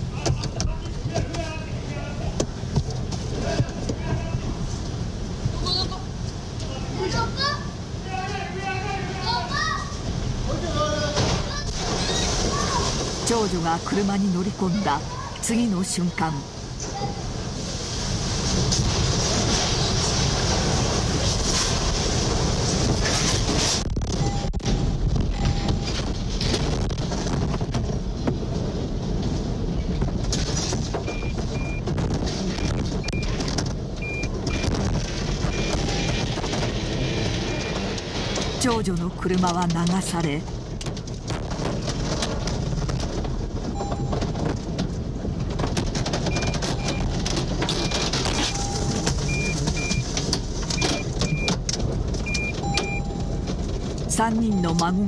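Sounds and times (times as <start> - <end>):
floodwater rushing around a car: 0.0 - 24.0, 24.8 - 38.7, 40.4 - 54.1
floodwater rushing: 11.4 - 15.4
debris knocking and cracking: 18.5 - 38.6, 40.5 - 54.1
short high beeps: 47.8 - 50.0, 52.3 - 53.4, 54.5 - 55.0.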